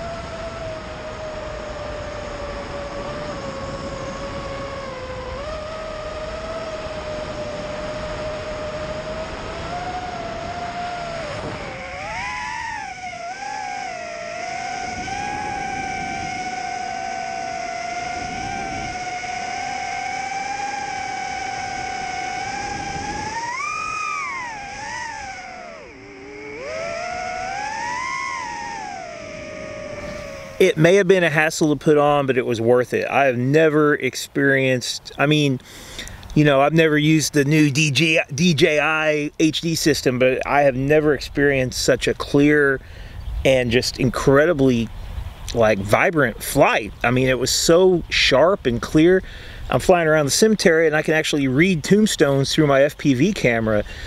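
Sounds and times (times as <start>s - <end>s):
drone motors whining: 0.0s - 32.2s.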